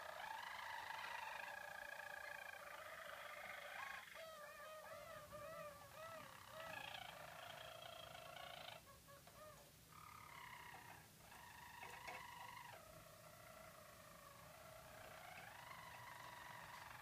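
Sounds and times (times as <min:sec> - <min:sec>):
canaries singing rolling song: 0:00.0 - 0:17.0.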